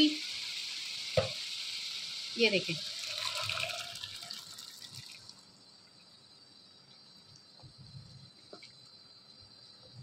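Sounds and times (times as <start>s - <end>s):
liquid pouring into a pan: 0.0s - 7.6s
faint steady hiss: 0.0s - 10.0s.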